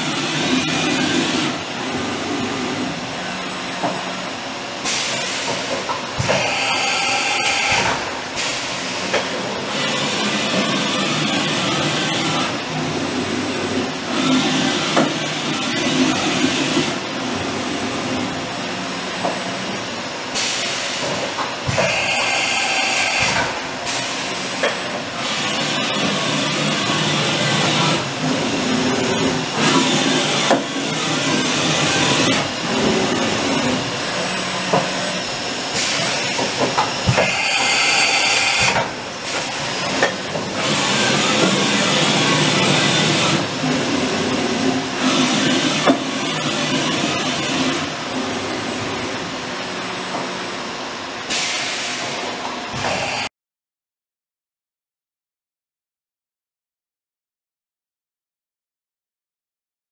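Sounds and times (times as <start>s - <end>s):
high machine whine: 0.0s - 53.3s
machine tool mechanical whir: 9.8s - 12.6s, 25.2s - 44.4s.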